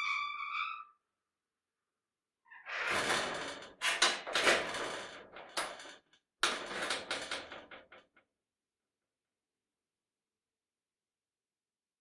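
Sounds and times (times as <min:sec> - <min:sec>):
door creaking and scraping: 0:00.0 - 0:01.0, 0:02.5 - 0:08.2.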